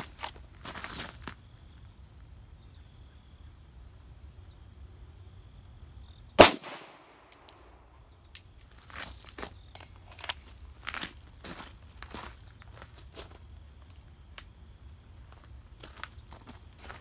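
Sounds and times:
pistol shot: 0:06.4 - 0:07.7.

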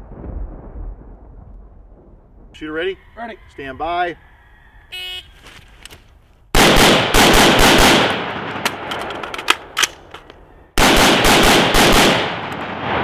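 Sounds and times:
rifle firing rapid shots: 0:06.6 - 0:08.9, 0:10.8 - 0:12.8
gunshot echoes: 0:10.8 - 0:13.0.

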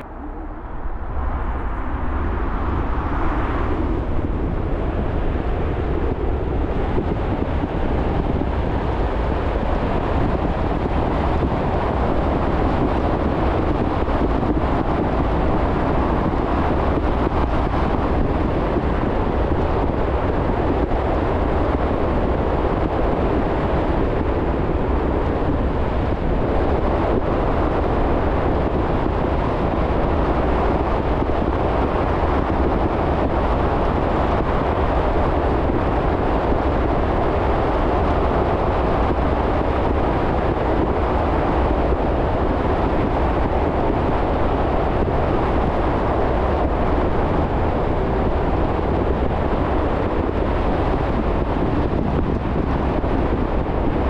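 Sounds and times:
car road noise rumble: 0:00.0 - 0:54.0.

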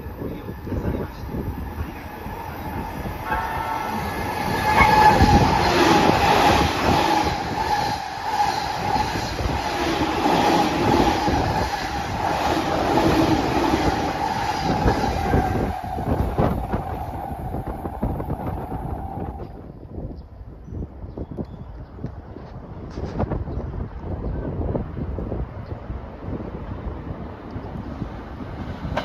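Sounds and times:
train wheels rushing on rail: 0:00.0 - 0:19.7
train whine: 0:00.0 - 0:19.8.

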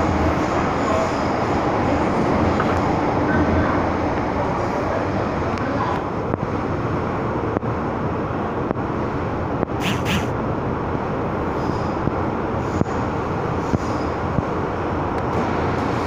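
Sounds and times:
train wheels rumbling on rail: 0:00.0 - 0:16.0
short high hissing: 0:09.8 - 0:10.3.

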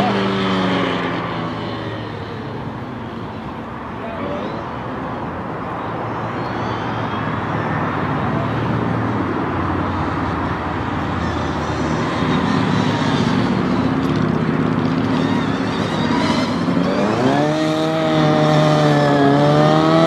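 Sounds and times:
car engine revving: 0:09.8 - 0:20.0.

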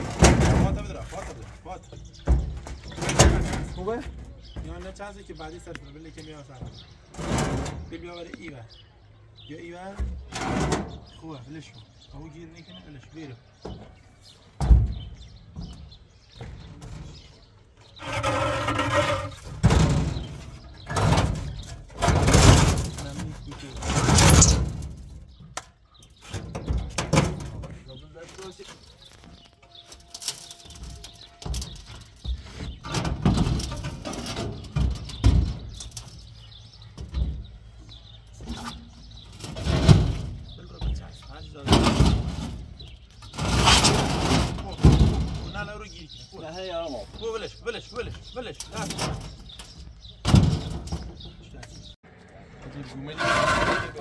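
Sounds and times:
concrete rings knocking and scraping: 0:13.5 - 0:52.0
concrete rings scraping on steel: 0:53.0 - 0:54.0.

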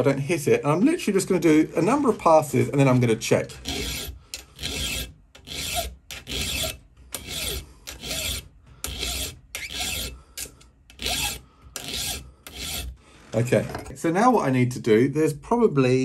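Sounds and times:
file rasping on steel: 0:03.5 - 0:13.5.

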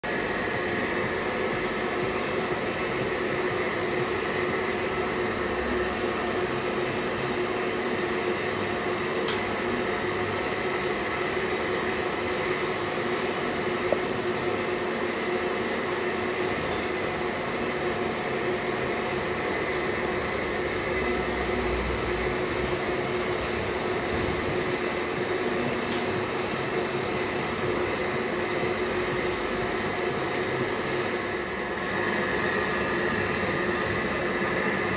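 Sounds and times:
lathe motor humming and whining: 0:00.0 - 0:34.9.

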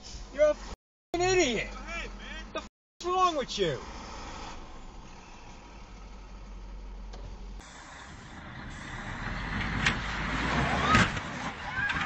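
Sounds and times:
faint low hum inside car: 0:01.2 - 0:07.6
bus engine running: 0:04.6 - 0:12.0.

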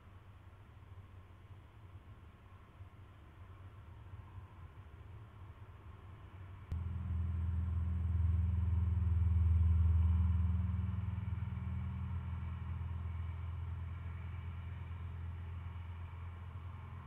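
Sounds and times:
passing vehicle engine rumble: 0:06.3 - 0:17.0.

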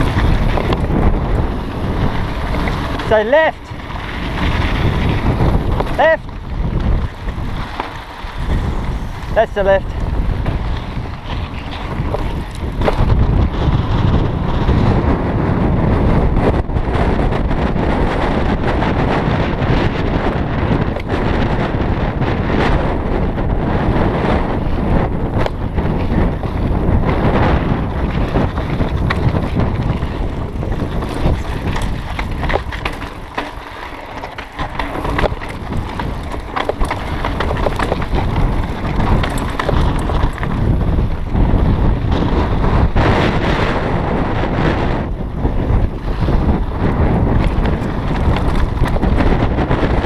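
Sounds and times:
tyres rolling on gravel: 0:00.0 - 0:15.0, 0:24.2 - 0:43.0, 0:45.2 - 0:50.0
bike rattling clicks: 0:00.0 - 0:50.0
wind buffeting microphone: 0:00.0 - 0:50.0.

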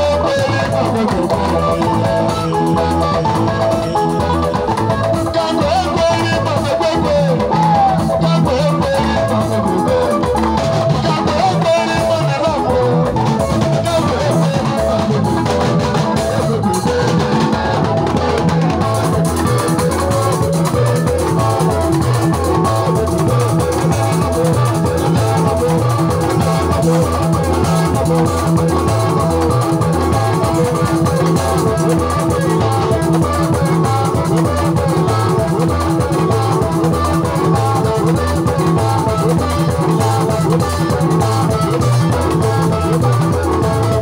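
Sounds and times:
man singing into a microphone: 0:00.0 - 0:02.4, 0:04.7 - 0:18.5
hand drums: 0:00.0 - 0:44.0
live rock band playing: 0:00.0 - 0:44.0.

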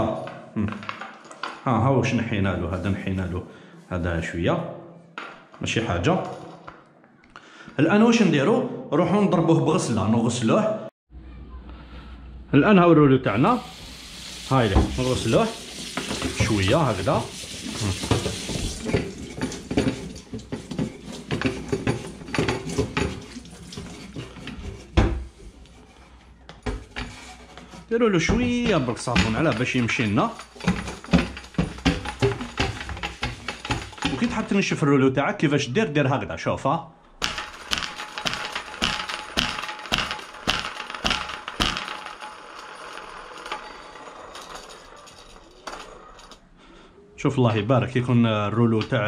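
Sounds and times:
paint roller whirring: 0:13.3 - 0:21.7, 0:37.2 - 0:43.9.

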